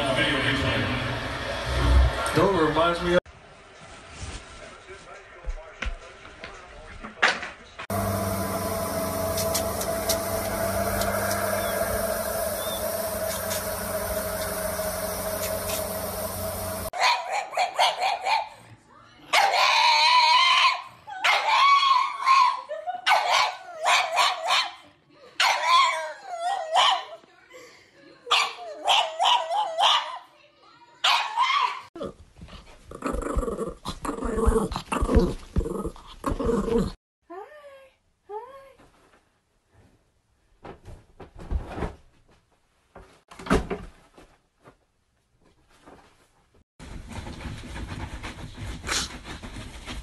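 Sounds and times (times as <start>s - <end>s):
dog howling and whining: 19.4s - 22.6s, 25.4s - 27.1s.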